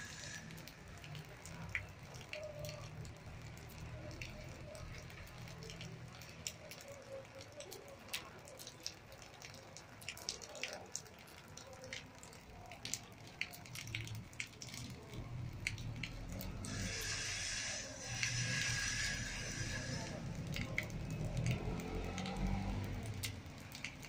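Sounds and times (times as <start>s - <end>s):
raindrops ticking on concrete: 0.0s - 24.0s.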